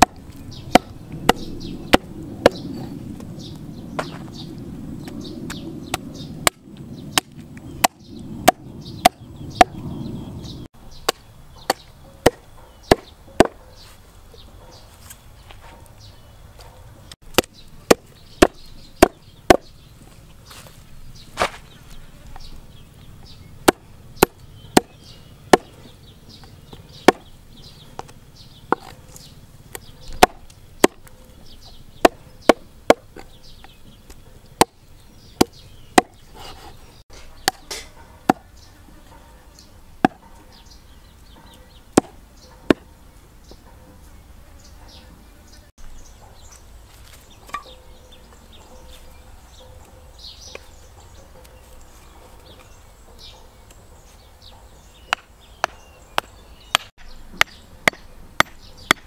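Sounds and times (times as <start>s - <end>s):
knife chopping on wooden board: 30.2s - 31.0s.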